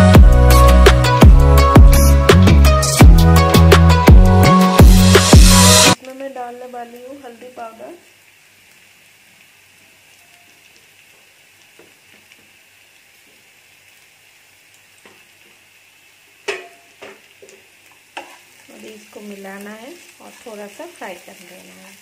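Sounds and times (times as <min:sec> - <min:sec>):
oil sizzling in frying pan: 0:00.0 - 0:22.0
spatula knocking against pan: 0:16.5 - 0:17.6.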